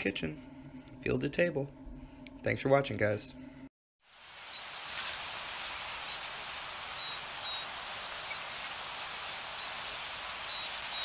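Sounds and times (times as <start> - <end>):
steady rushing hiss: 4.0 - 11.0
high bird chirps: 5.6 - 11.0.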